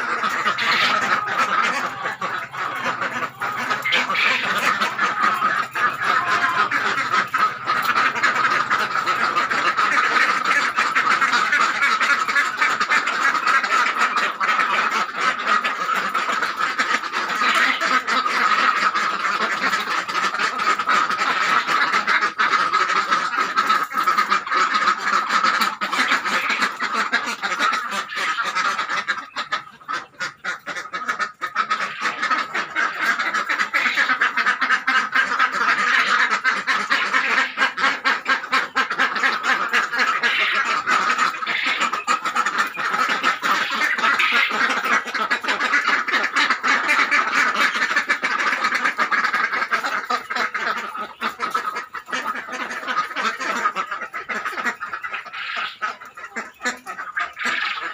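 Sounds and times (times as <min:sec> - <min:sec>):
ducks quacking: 0:00.0 - 0:57.9.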